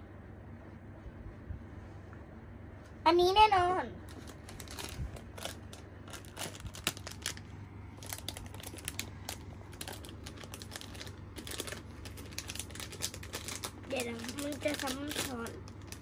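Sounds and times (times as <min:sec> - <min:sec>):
foil pouch crinkling: 0:04.1 - 0:16.0.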